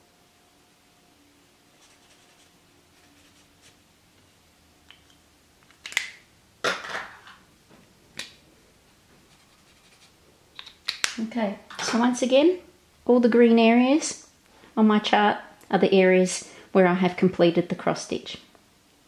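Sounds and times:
scraping rustle: 1.7s - 3.8s.

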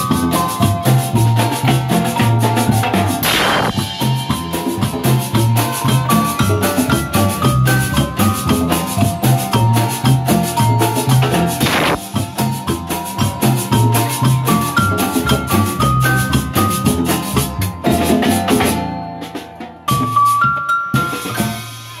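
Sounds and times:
drums and bass beat: 0.0s - 22.0s
live band music: 0.0s - 22.0s
marimba: 0.0s - 22.0s.

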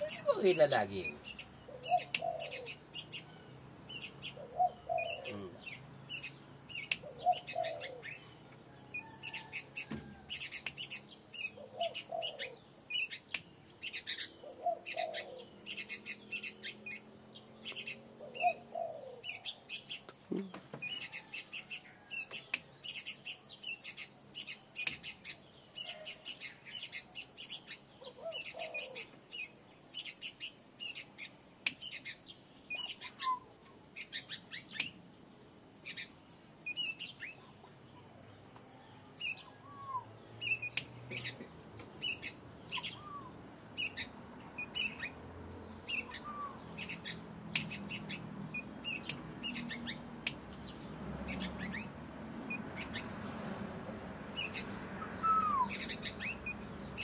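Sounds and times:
dove cooing: 0.0s - 6.3s, 7.0s - 8.3s, 11.4s - 13.1s, 14.0s - 17.0s, 17.6s - 19.6s, 28.0s - 29.1s, 41.1s - 44.1s, 45.9s - 48.3s, 55.0s - 56.3s
small birds chirping: 0.0s - 57.0s.

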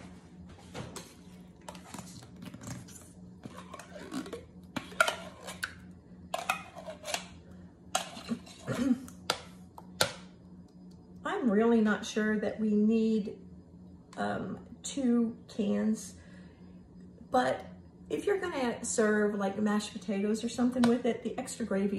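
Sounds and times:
metal spoon scraping tin can: 3.4s - 5.7s, 6.4s - 7.3s, 8.0s - 8.8s.

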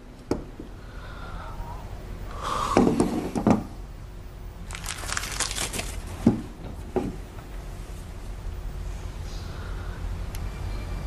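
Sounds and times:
rustling and crinkling: 4.6s - 8.1s.

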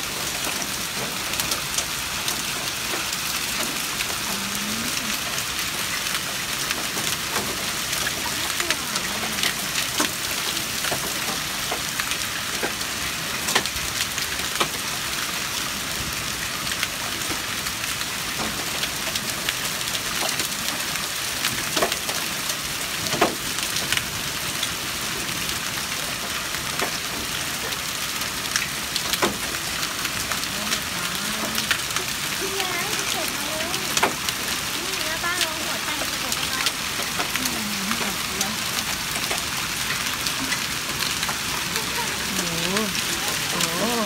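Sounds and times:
hailstones clicking on hard surfaces: 0.0s - 44.0s
hail hissing: 23.7s - 44.0s.

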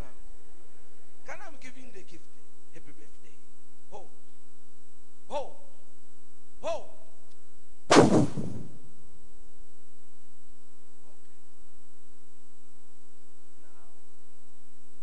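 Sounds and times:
electrical mains hum: 0.0s - 15.0s
loud brief burst: 7.9s - 8.8s.

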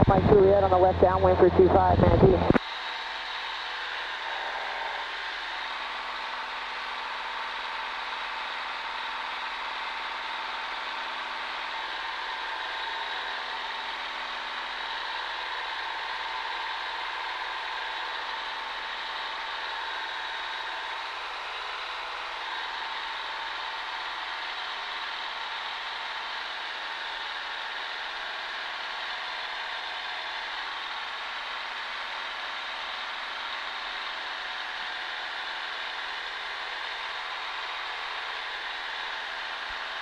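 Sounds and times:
propeller plane engine droning: 0.0s - 40.0s.

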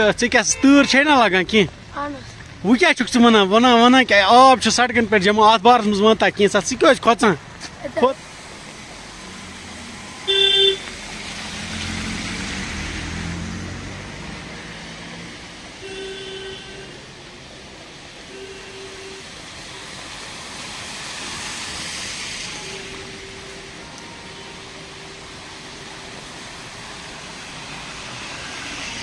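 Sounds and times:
car driving through water: 0.0s - 29.0s
car horn beeping: 0.2s - 1.3s, 10.0s - 10.9s, 15.8s - 17.1s, 18.3s - 19.9s, 22.5s - 26.2s.

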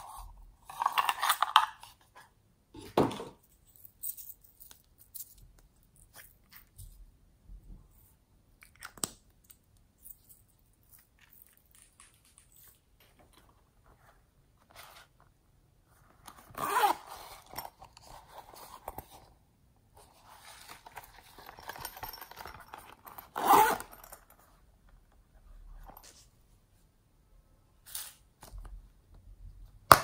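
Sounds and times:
zipper rasping: 16.5s - 17.5s, 23.3s - 24.0s
pouch handling: 16.5s - 19.0s.

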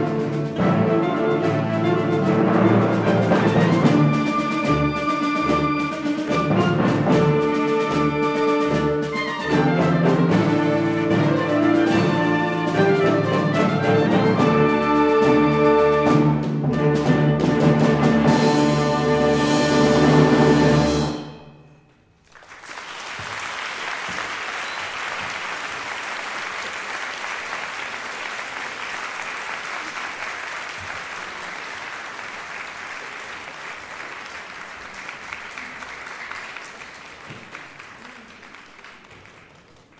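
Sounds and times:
audience applause: 22.2s - 39.9s.

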